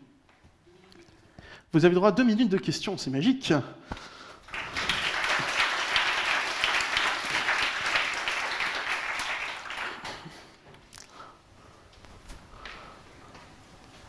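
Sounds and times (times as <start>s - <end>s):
audience applauding: 4.4s - 10.6s.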